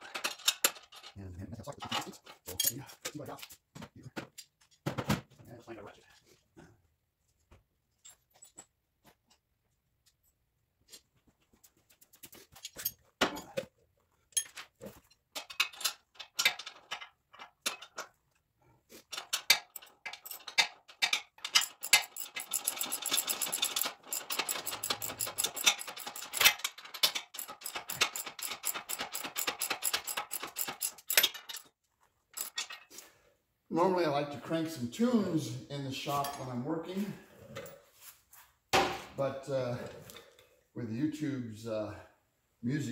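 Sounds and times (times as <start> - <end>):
metal parts clinking: 0.0 - 1.2, 1.8 - 3.0, 14.3 - 18.2, 19.0 - 31.7, 32.3 - 33.0
socket ratchet clicking: 21.5 - 26.6, 27.3 - 31.6.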